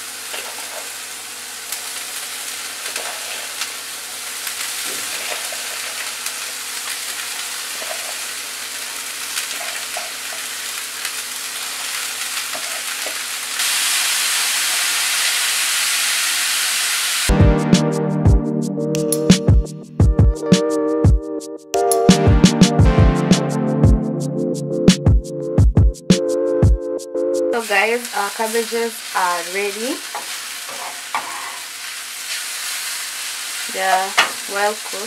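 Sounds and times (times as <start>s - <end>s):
vegetables sizzling in oil: 0.0s - 17.3s, 27.6s - 35.0s.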